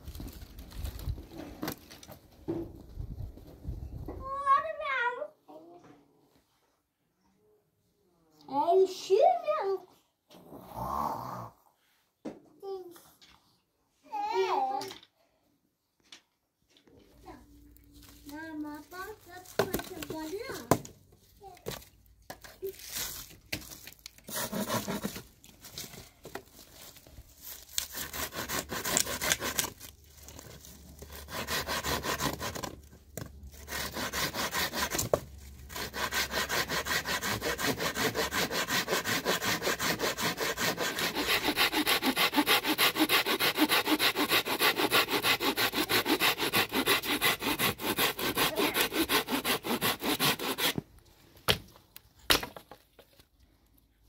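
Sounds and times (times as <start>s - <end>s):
hand saw cutting wood: 24.3s - 25.3s, 27.8s - 32.8s, 33.5s - 50.8s.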